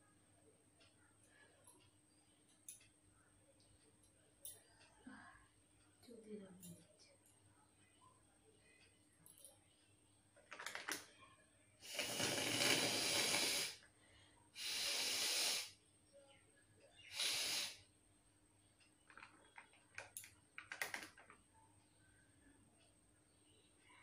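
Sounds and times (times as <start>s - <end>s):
person blowing through nose: 11.8s - 13.8s, 14.6s - 15.7s, 17.1s - 17.8s
faint ticks and rustles: 18.6s - 24.0s.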